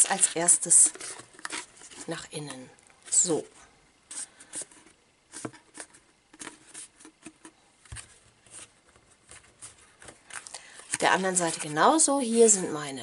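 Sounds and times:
cardstock crackling and rustling: 5.4s - 12.6s.

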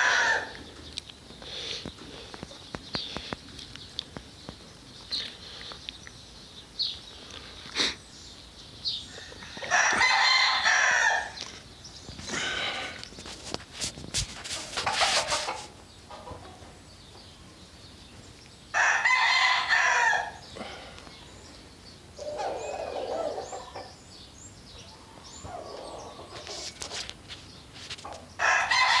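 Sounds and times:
rooster crowing: 0.0s - 0.6s, 9.4s - 11.4s, 18.7s - 20.4s, 28.4s - 29.0s.

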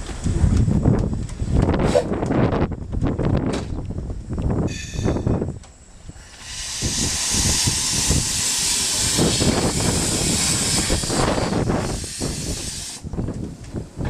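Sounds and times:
wind buffeting microphone: 0.0s - 14.0s
steam locomotive hissing steam: 4.6s - 13.1s.

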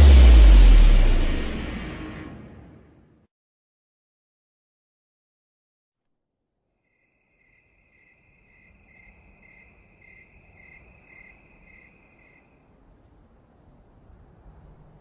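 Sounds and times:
low rumble: 0.0s - 3.2s
cricket chirping: 6.8s - 12.7s.

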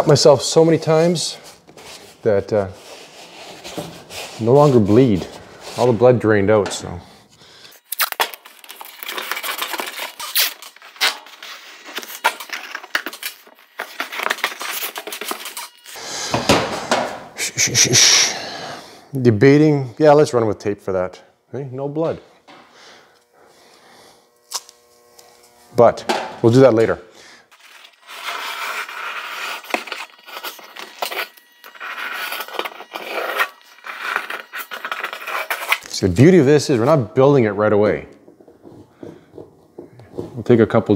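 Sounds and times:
scraping and rasping strokes: 0.0s - 7.8s, 8.6s - 18.0s, 26.5s - 37.0s
masking tape peeling off roll: 7.8s - 16.0s, 27.5s - 36.0s
handling noise: 37.8s - 40.8s.

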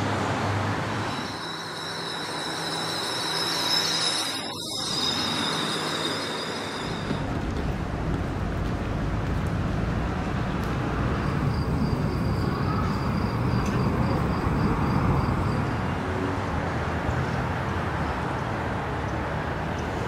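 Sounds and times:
traffic noise: 0.0s - 20.0s
faint high whine: 1.0s - 7.3s.

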